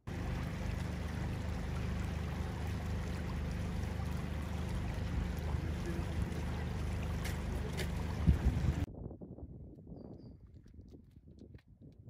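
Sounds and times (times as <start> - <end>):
stream flowing over stones: 0.0 - 8.9.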